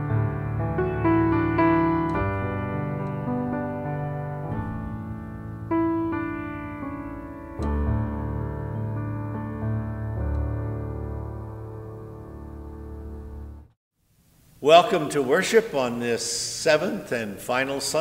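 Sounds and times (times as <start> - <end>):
slow solo piano chords: 0.0 - 13.7.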